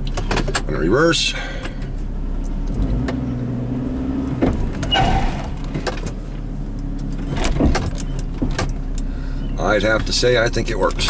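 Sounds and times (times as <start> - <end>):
car engine at low speed: 0.0 - 11.0
short rushing noise: 4.8 - 5.9.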